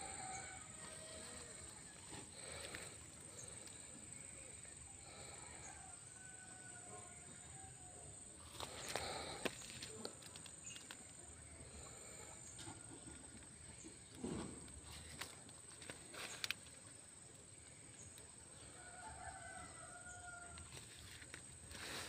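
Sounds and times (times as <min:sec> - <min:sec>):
steady high-pitched whine: 0:00.0 - 0:22.0.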